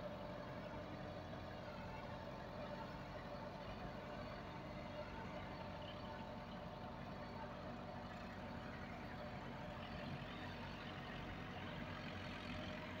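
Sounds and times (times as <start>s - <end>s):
tractor diesel engine under load: 0.0s - 13.0s.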